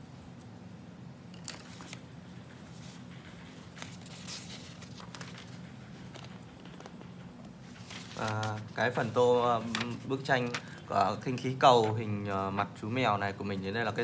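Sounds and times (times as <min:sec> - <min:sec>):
steady low hum: 0:00.0 - 0:14.0
paper rustling: 0:01.3 - 0:12.2.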